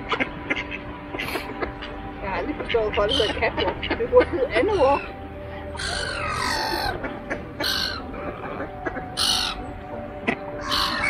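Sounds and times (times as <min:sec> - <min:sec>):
gulls and ducks calling: 0:00.0 - 0:11.0
harsh squawks: 0:04.7 - 0:09.6, 0:10.3 - 0:11.0.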